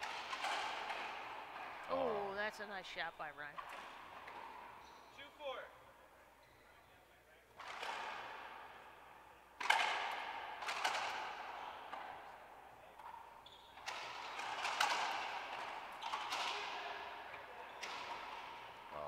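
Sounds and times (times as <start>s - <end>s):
ball cracking off racquets and walls: 0.0s - 1.9s, 7.6s - 8.9s, 9.6s - 18.9s.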